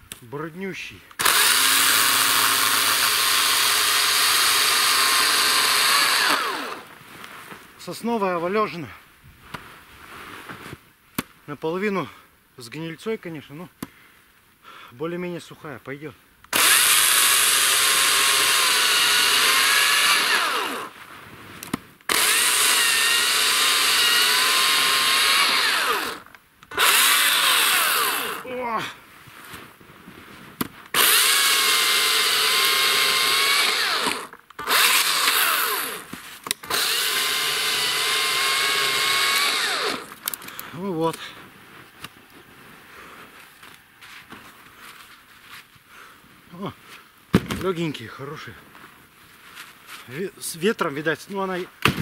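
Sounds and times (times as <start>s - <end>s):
chainsaw cutting through log: 1.2s - 6.9s, 16.5s - 21.0s, 22.1s - 28.5s, 30.9s - 40.2s.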